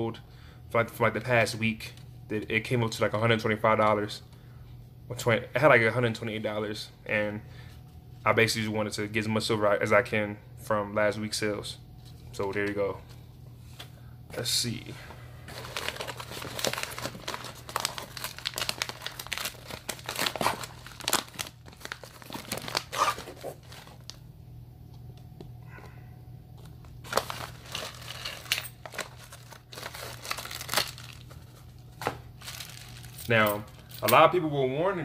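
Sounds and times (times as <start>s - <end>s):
paper mailer crinkling: 15.5s - 24.2s, 26.6s - 34.0s.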